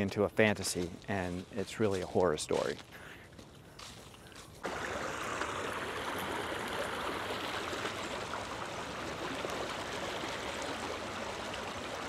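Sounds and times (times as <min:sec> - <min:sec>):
creek rushing over rocks: 0:04.6 - 0:12.0.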